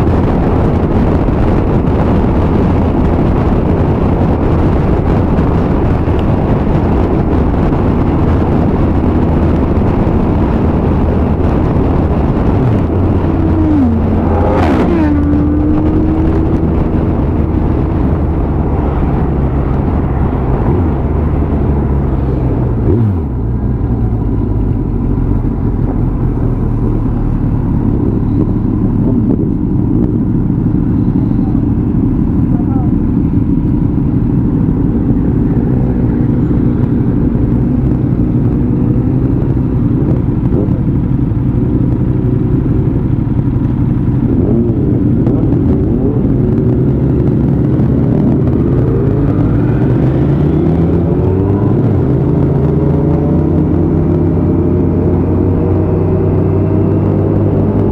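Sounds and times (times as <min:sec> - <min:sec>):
motorcycle engine: 0:00.0 - 0:57.9
wind rush: 0:00.0 - 0:57.9.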